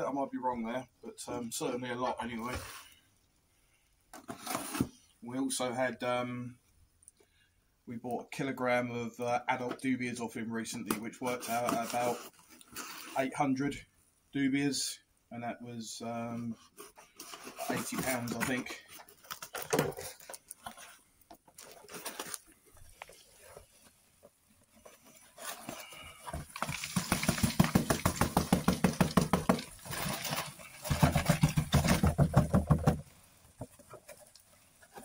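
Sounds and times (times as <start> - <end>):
cardboard box rattling: 24.8 - 35.0
knocks on cardboard box: 26.7 - 29.7, 30.9 - 33.0.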